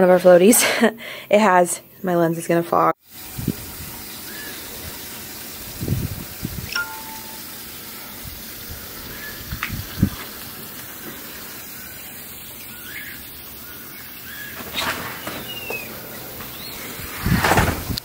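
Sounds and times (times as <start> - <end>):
steady background hiss: 3.1 - 18.0
bird chirps: 15.2 - 15.9.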